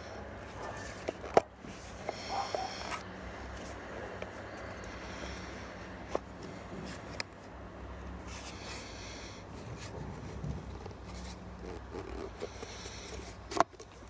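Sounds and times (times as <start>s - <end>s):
rubber tyre scraping against rim: 9.5s - 14.0s.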